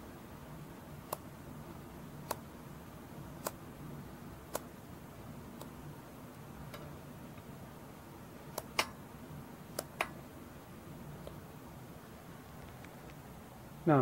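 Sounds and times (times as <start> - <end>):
scissors snipping hair: 2.2 - 2.4.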